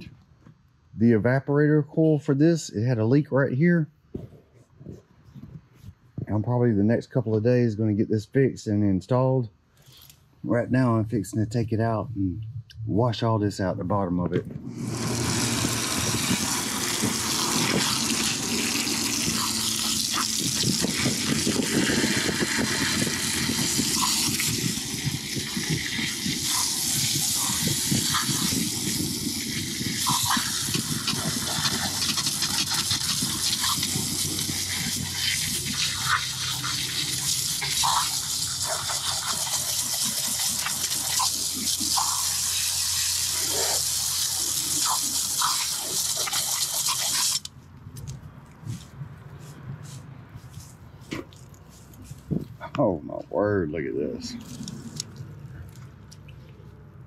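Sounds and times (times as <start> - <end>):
hose spraying water on metal: 14.8 - 47.5.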